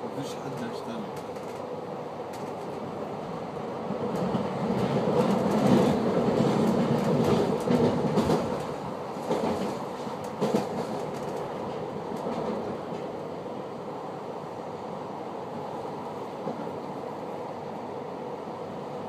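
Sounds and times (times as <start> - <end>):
train wheels rumbling on rails: 0.0 - 14.6
clicks over rail joints: 0.6 - 1.7.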